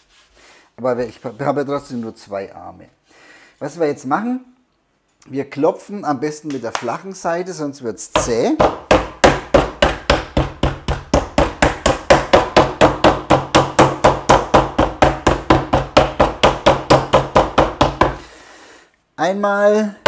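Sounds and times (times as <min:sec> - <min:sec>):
meat mallet pounding on wooden board: 0:08.2 - 0:18.2.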